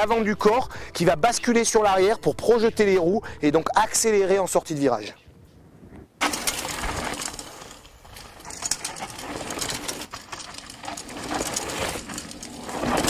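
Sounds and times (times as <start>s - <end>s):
bike mechanical rattle: 6.2s - 13.0s
bike tyres skidding on dirt: 6.2s - 13.0s.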